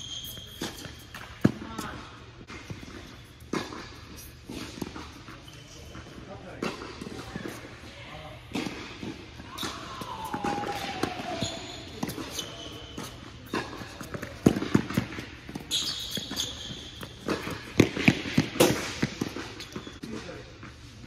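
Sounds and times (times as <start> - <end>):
short high squeaks: 0.0 - 1.1, 15.6 - 17.2
racquets striking tennis ball: 0.0 - 7.7, 8.5 - 20.8
ball bouncing: 8.5 - 19.9.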